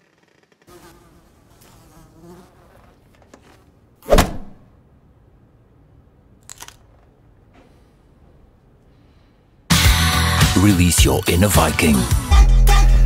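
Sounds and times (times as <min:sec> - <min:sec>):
housefly buzzing: 0:00.0 - 0:03.2
loud thump: 0:04.1 - 0:04.7.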